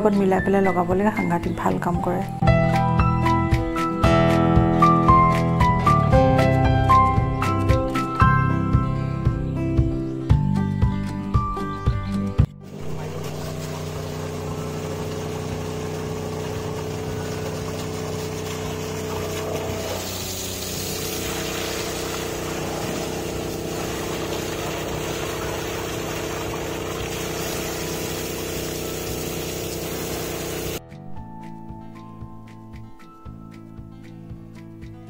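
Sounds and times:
water gushing from hose: 12.6 - 30.8
steady mechanical hum: 12.7 - 30.8.

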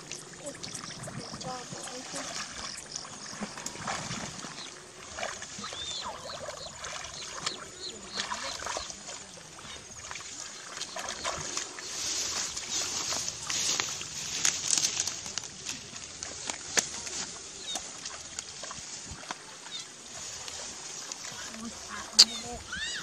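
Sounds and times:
feet wading through muddy water: 0.0 - 23.0
loud rustling hiss: 11.6 - 17.7.

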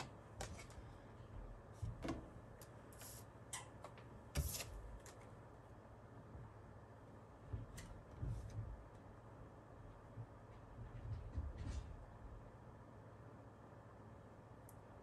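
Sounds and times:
paper cards handled on a desk: 4.4 - 5.3.

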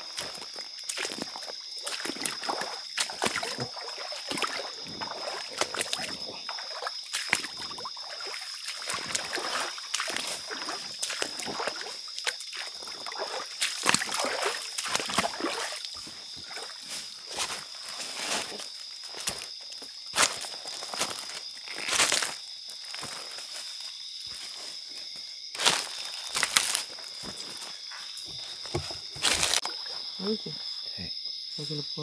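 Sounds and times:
water splashing from wading: 0.0 - 19.5
insect drone: 0.0 - 32.0
knocks and rustles: 28.2 - 29.6.

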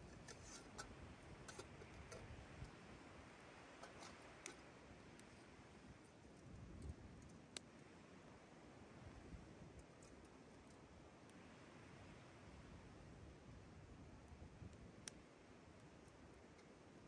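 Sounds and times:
quiet steady hiss: 0.0 - 17.0
campfire crackling and popping: 3.7 - 5.4.

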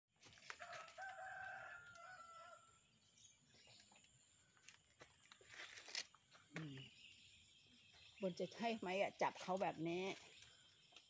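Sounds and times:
faint rooster crowing: 0.5 - 2.8.

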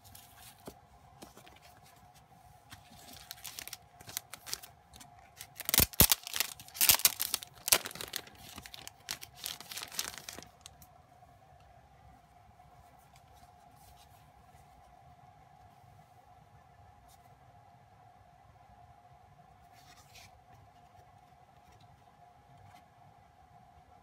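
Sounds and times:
plastic wrapper crinkling: 2.7 - 10.8.

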